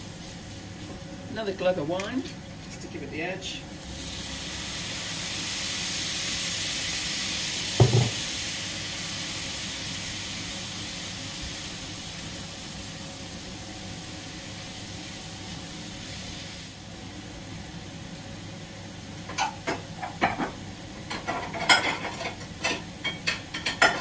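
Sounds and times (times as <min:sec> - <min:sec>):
wine sizzling in frying pan: 0:00.0 - 0:24.0.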